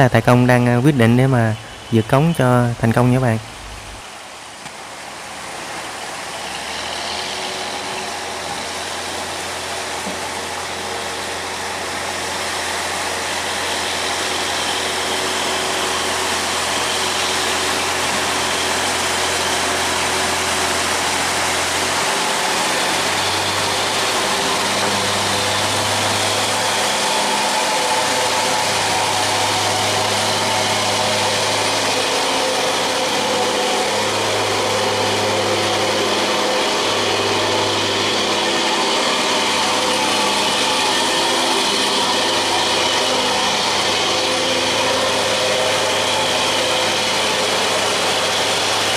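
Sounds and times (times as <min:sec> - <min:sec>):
barge diesel engine running hard: 0:00.0 - 0:48.9
water rushing and churning: 0:00.0 - 0:48.9.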